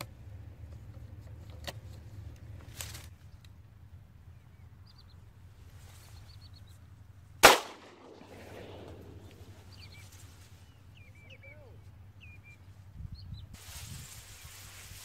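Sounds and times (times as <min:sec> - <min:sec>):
shotgun shot: 0:07.4 - 0:09.6
rolling echo: 0:07.4 - 0:10.0.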